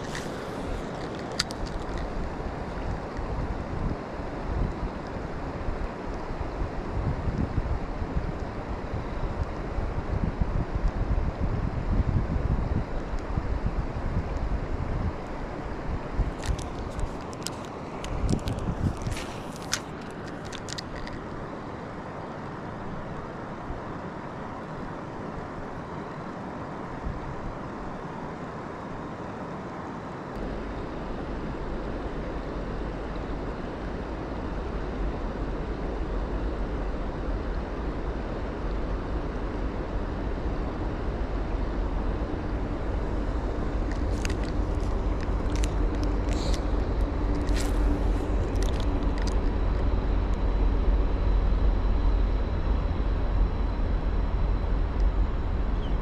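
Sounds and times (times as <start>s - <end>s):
low rumble: 30.4s - 56.0s.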